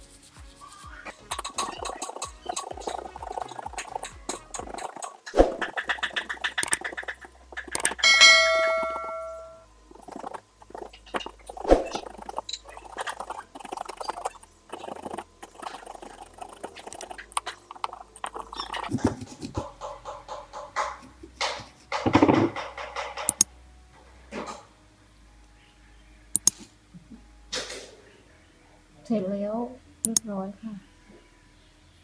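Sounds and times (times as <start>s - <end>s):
ringing clink: 8.0s - 9.6s.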